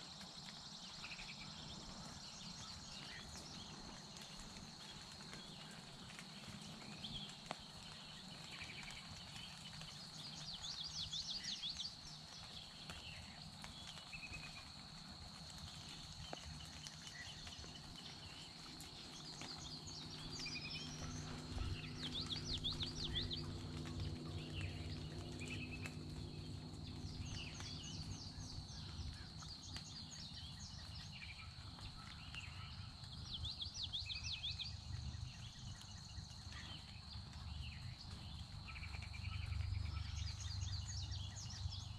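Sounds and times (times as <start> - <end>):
songbirds singing trilled phrases: 17.1 - 41.9
faint low rumble: 18.4 - 31.2.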